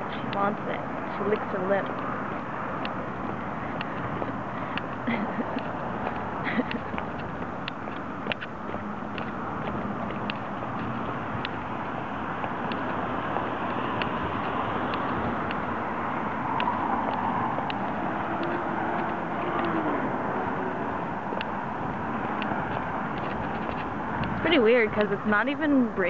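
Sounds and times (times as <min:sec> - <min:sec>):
city traffic noise: 0:00.0 - 0:26.0
vehicle passing: 0:00.0 - 0:26.0
light ticks: 0:10.1 - 0:11.6.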